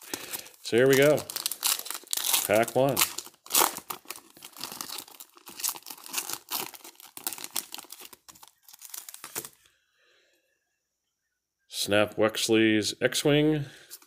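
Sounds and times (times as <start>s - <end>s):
foil wrapper tearing and crinkling: 0.0s - 9.6s.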